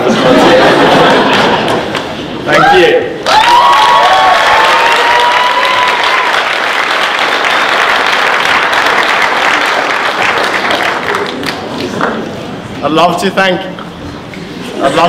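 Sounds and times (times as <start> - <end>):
high whoop: 2.5 - 6.5
audience applauding: 3.2 - 12.1.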